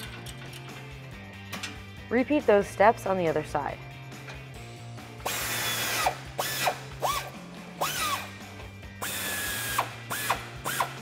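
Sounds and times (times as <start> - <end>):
cordless power tool whirring: 5.2 - 8.3, 9.0 - 11.0.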